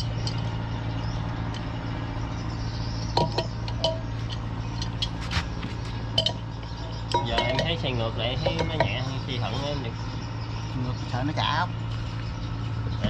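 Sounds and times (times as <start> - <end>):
steady low hum: 0.0 - 13.0
metal tools clinking: 6.1 - 9.0.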